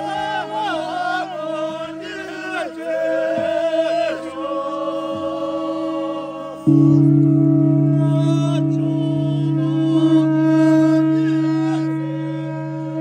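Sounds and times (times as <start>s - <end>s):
loud low sustained tone: 6.6s - 13.0s
low drone: 6.6s - 13.0s
wavering high melody: 6.7s - 13.0s.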